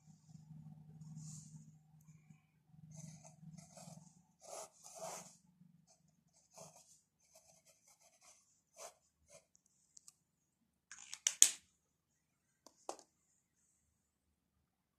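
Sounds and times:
pen scratching on paper: 0:02.9 - 0:09.5.

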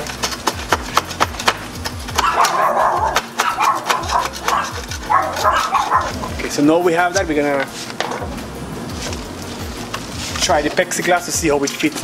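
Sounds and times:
glass pieces clicking and scraping: 0:00.0 - 0:06.4.

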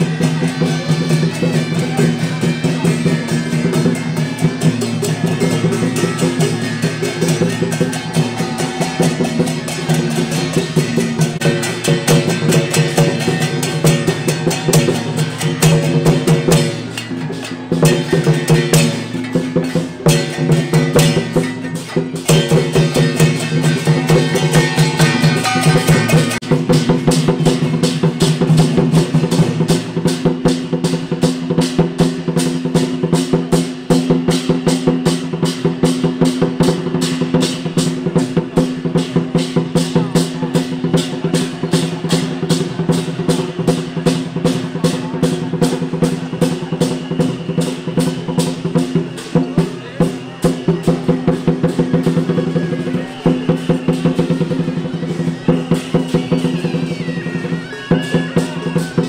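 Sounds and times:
held melodic tones: 0:00.0 - 0:27.2
drums beating fast rhythm: 0:00.0 - 0:59.0.

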